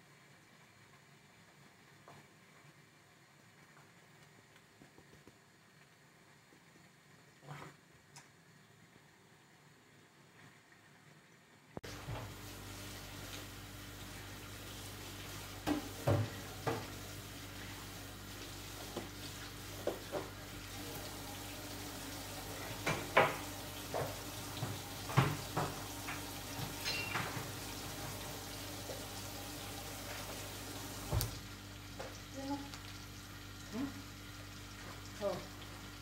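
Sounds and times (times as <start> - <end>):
frying pan sizzling: 8.0 - 36.0
utensils and dishes clinking: 24.6 - 28.1.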